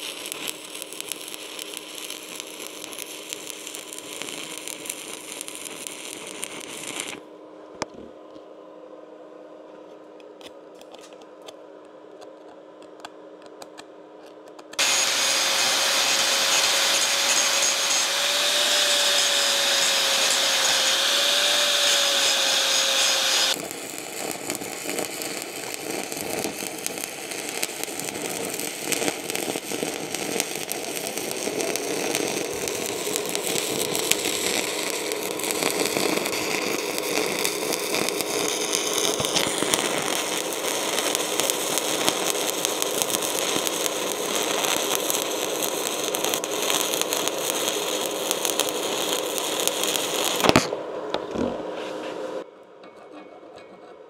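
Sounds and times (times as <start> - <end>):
welding arc crackling: 0.0 - 7.2, 14.8 - 50.7
power tool whining: 14.8 - 23.6.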